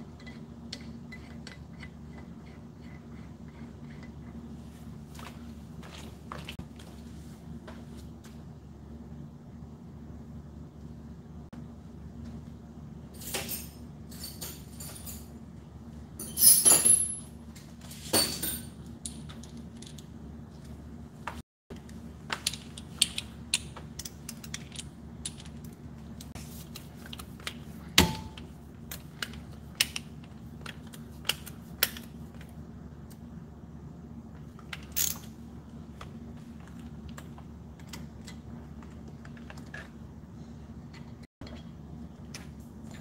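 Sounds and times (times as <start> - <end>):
steady low hum: 0.0 - 43.0
metal parts and tools clinking: 16.2 - 17.3.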